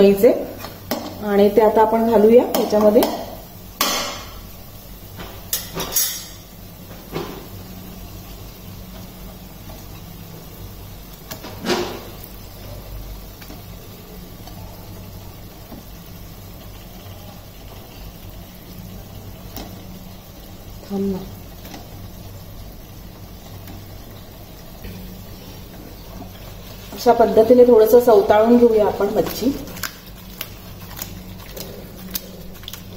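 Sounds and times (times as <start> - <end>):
steady low hum: 0.0 - 32.9.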